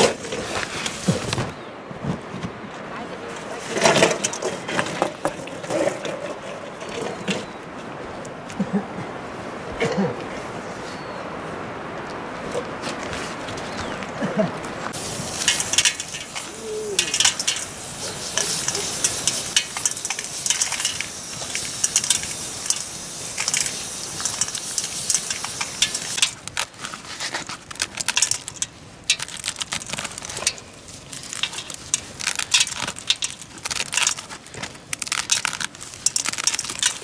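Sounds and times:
dense crackling hiss: 0.0s - 37.0s
maize kernels clicking onto steel: 15.0s - 37.0s.

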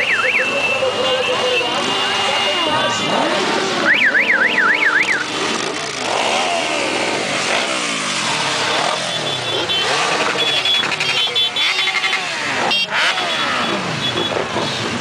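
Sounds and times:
electronic warbling siren: 0.0s - 1.8s, 2.6s - 5.4s
motorcycles riding past: 0.4s - 15.0s.

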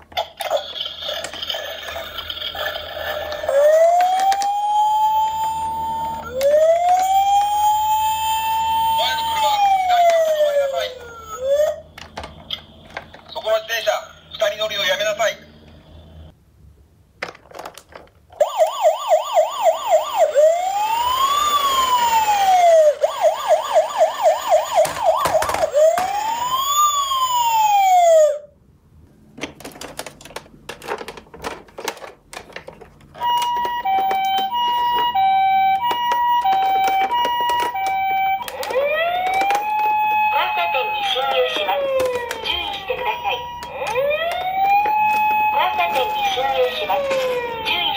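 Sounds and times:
plastic toys clicking and knocking: 0.0s - 7.6s, 11.9s - 13.3s, 17.2s - 18.4s, 23.8s - 26.6s, 29.3s - 47.9s
toy police siren: 1.2s - 12.3s, 18.4s - 28.5s, 33.2s - 47.9s
toy ambulance two-tone siren: 3.2s - 11.9s, 18.4s - 28.5s, 33.2s - 47.9s.

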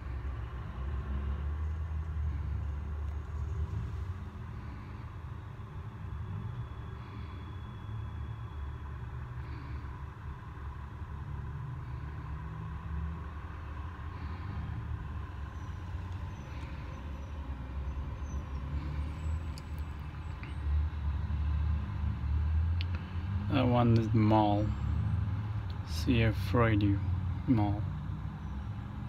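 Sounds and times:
city street traffic rumble: 0.0s - 29.0s.

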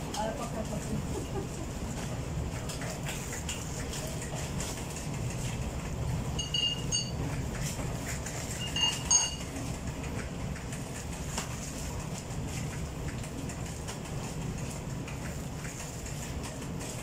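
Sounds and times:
low machine hum: 0.0s - 17.0s.

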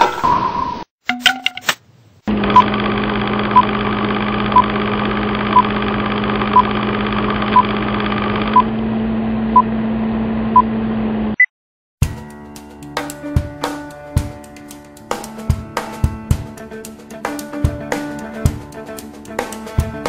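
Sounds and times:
film projector whir: 2.3s - 9.0s.

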